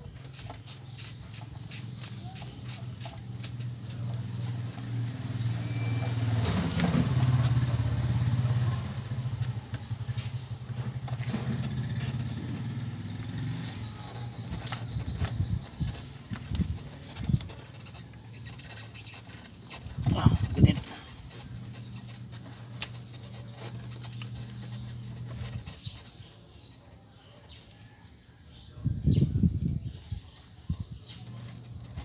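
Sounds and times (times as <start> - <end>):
bird chirping: 0.0 - 32.0
vehicle engine chugging: 0.6 - 26.0.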